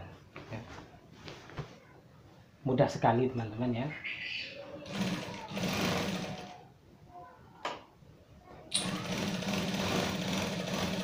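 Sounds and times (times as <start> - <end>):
sewing machine stitching: 4.9 - 6.6, 8.7 - 11.0.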